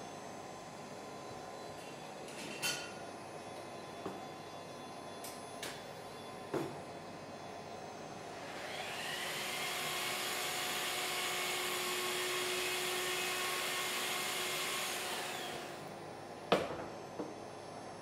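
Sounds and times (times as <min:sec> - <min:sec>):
power tool motor spinning: 0:08.5 - 0:15.8.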